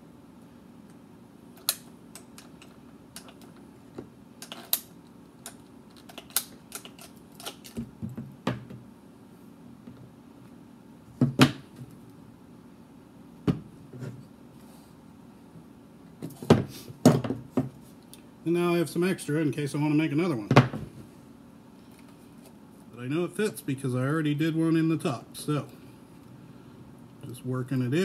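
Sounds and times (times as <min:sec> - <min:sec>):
pipe cutter clicking and snapping: 0:01.6 - 0:03.5, 0:04.4 - 0:07.8.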